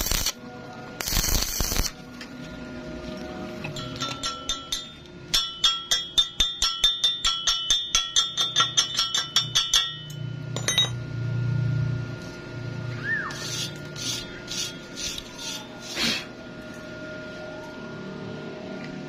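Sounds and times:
chipping tool tapping metal: 3.7s - 11.0s
steel plate ringing: 3.8s - 11.1s.

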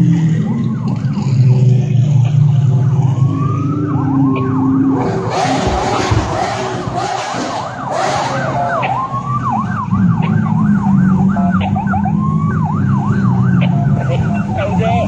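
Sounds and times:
car engines running: 0.0s - 15.0s
siren yelping: 2.7s - 15.0s.

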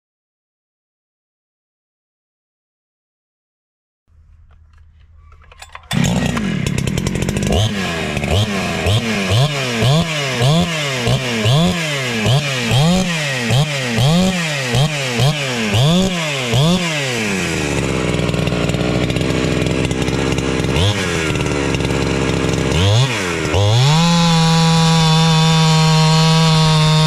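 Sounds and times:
chainsaw revving and idling: 5.6s - 27.0s.

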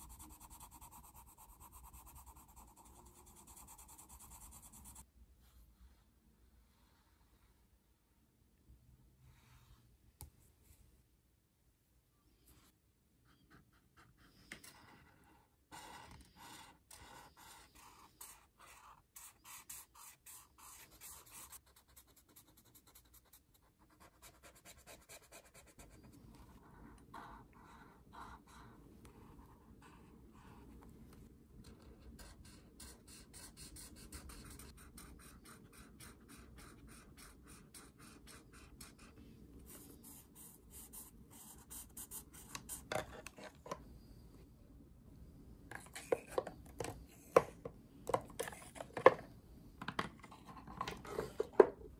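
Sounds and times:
marker scratching on paper: 13.3s - 26.0s, 26.6s - 30.6s, 32.1s - 43.2s.

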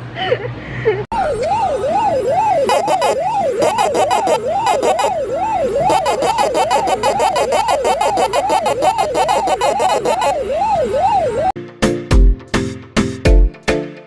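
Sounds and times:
emergency siren yelping: 1.1s - 11.6s.

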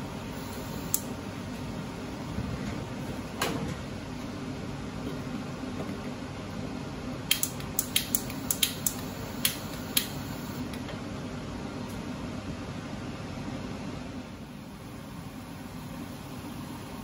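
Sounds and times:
sharp clicks: 7.3s - 10.6s.

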